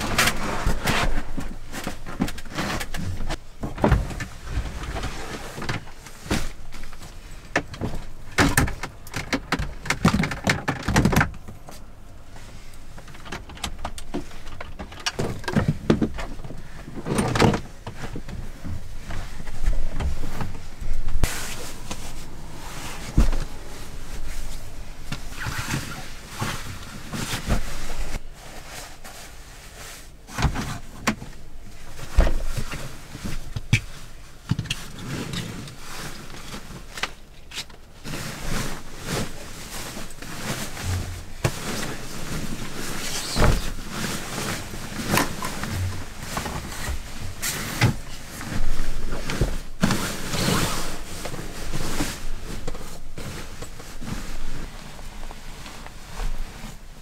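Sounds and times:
nylon sleeping bag rustling: 0.0s - 3.4s, 15.7s - 37.3s, 37.9s - 57.0s
straps being pulled: 18.8s - 29.3s, 34.7s - 56.8s.

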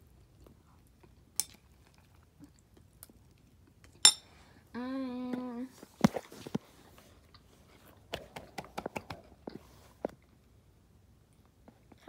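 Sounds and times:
person humming: 4.7s - 5.7s.

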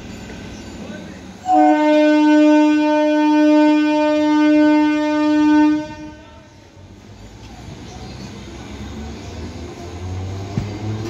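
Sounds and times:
train horn long blast: 1.4s - 6.5s.

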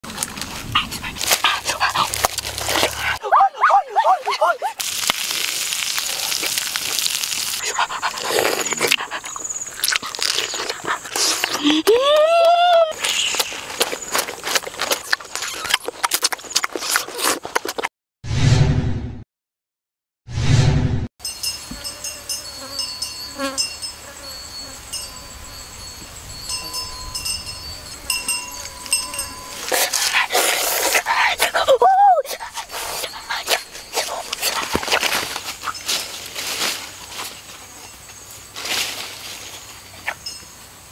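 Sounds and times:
person chewing fruit: 0.1s - 3.2s, 4.8s - 12.0s, 12.9s - 17.9s, 28.5s - 31.6s, 32.3s - 35.8s
meat sizzling on hot stone: 4.8s - 7.6s
insects chirping: 5.0s - 11.8s, 13.0s - 15.7s, 21.3s - 31.7s, 32.3s - 40.9s.

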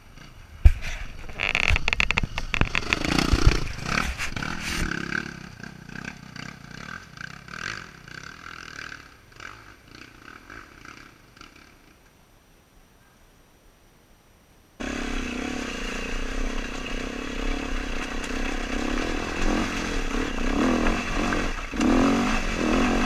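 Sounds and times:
bike knocking against rocks: 0.7s - 4.0s
dirt bike engine revving: 1.6s - 11.9s, 14.8s - 23.0s.

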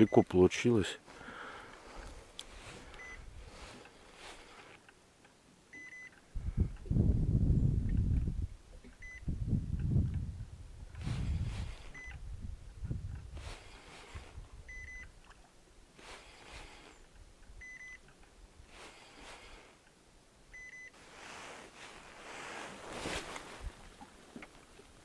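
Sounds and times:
faint noisy swishes: 1.8s - 4.8s, 21.0s - 24.1s.

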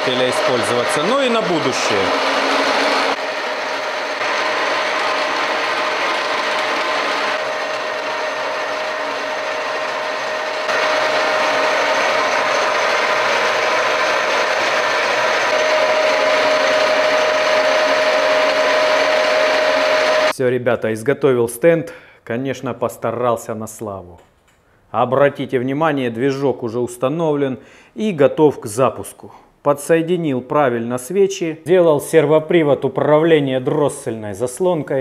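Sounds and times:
milling machine whirring and whining: 0.0s - 20.3s.

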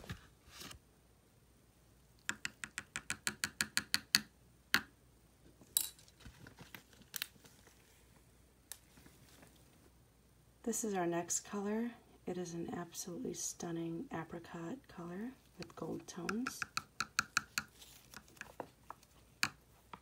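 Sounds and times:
metal spoon tapping plastic tub: 2.3s - 4.9s, 16.2s - 18.4s.

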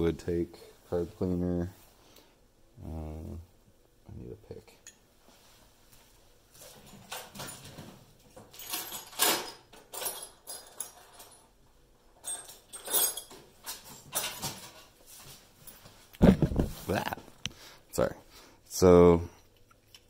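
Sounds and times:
metal tools rattling and scraping: 6.6s - 15.0s.

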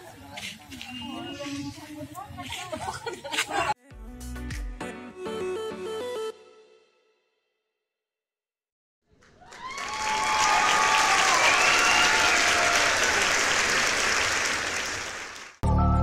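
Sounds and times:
crowd applause: 9.2s - 15.6s
voices cheering: 9.4s - 15.2s.

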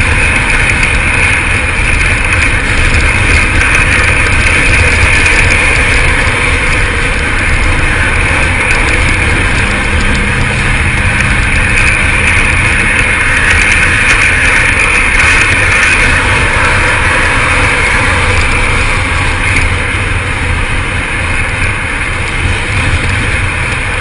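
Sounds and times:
car road noise: 0.0s - 24.0s
wind rushing: 0.0s - 24.0s.

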